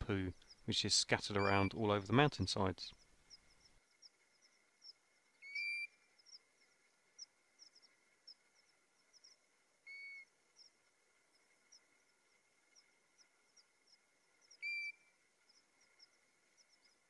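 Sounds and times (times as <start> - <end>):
faint high chirps: 1.3 - 2.2, 2.8 - 17.0
plover whistles: 1.4 - 1.8, 14.6 - 15.1.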